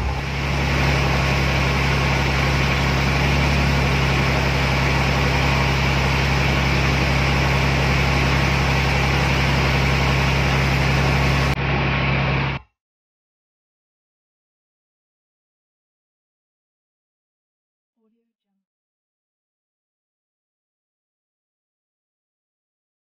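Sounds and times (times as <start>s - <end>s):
boat engine humming: 0.0s - 12.6s.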